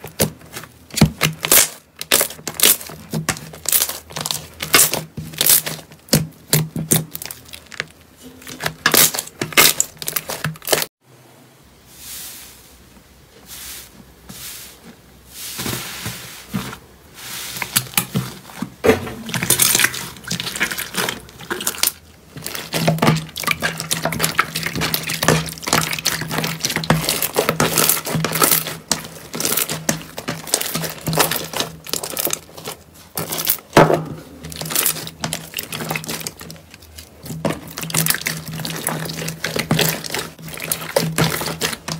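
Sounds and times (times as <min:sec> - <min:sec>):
slime crackling and popping: 0:00.0 - 0:10.9, 0:19.3 - 0:41.9.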